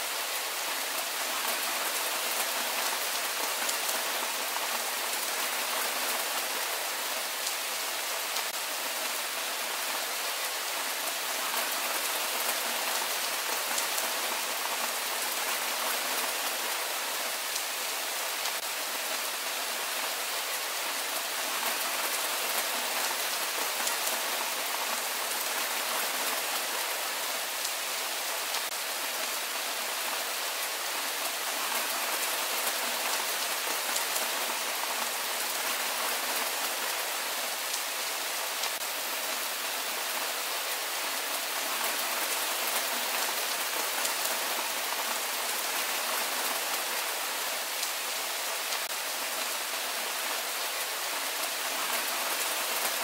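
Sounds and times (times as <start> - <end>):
steady rain: 0.0 - 53.0.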